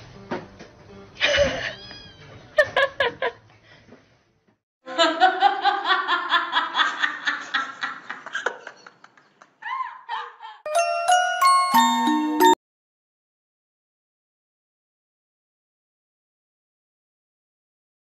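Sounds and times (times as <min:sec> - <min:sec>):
person laughing: 0:01.2 - 0:01.9, 0:09.6 - 0:10.7.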